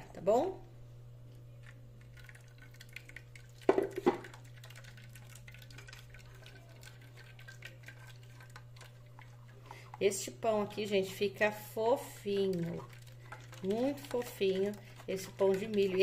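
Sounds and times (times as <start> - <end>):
steady low hum: 0.0 - 16.0
liquid draining through a sieve: 2.0 - 9.9
wooden spoon stirring in a sieve: 2.0 - 16.0.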